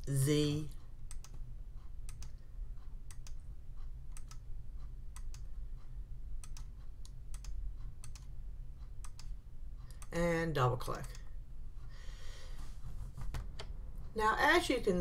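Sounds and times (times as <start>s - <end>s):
steady low hum: 0.0s - 15.0s
computer mouse clicking: 1.0s - 10.2s.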